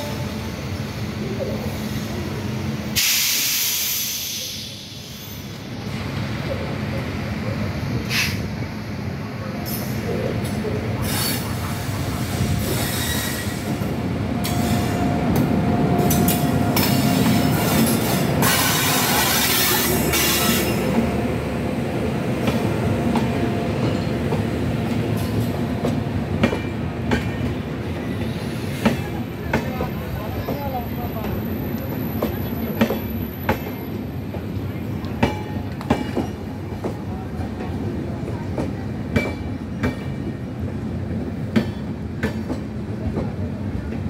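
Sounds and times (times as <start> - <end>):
train rumbling past: 0.0 - 44.0
wheel squeal: 12.7 - 13.6.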